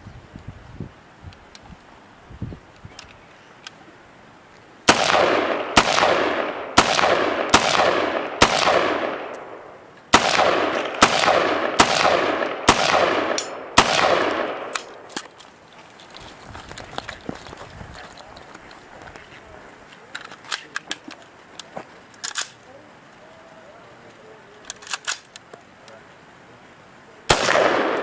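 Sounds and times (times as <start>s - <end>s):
rifle shots echoing: 4.9s - 15.2s, 27.3s - 28.0s.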